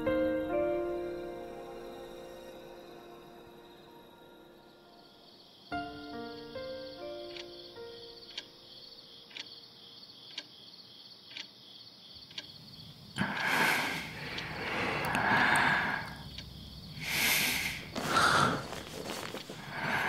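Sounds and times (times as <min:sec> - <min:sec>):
crickets chirping: 0:00.0 - 0:20.0
clock ticking: 0:07.2 - 0:08.6, 0:09.2 - 0:09.6, 0:10.2 - 0:10.6, 0:11.3 - 0:11.6, 0:12.2 - 0:12.6, 0:14.3 - 0:15.2, 0:16.2 - 0:16.9
rustling: 0:17.4 - 0:20.0.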